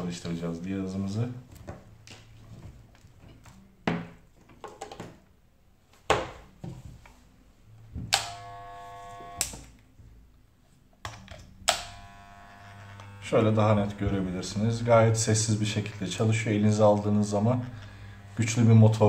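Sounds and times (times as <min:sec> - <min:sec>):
pet clipper humming: 0:08.1 - 0:09.6, 0:11.6 - 0:14.2, 0:17.0 - 0:18.8.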